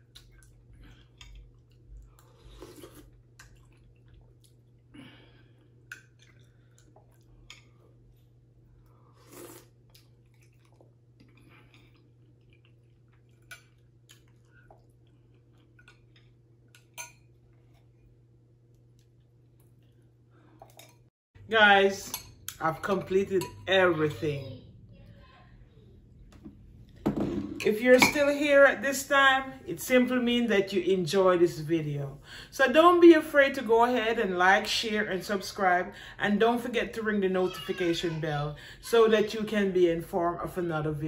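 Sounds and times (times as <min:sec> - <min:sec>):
soft chewing: 0:00.0 - 0:21.1
low steady hum: 0:00.0 - 0:41.0.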